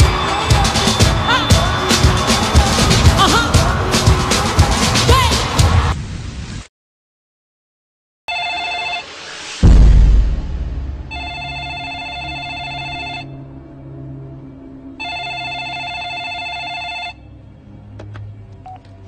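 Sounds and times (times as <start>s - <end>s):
cordless phone ringing: 8.3s - 9.1s, 11.2s - 13.3s, 15.0s - 17.2s
deep boom: 9.6s - 11.8s
low music drone: 9.6s - 15.0s.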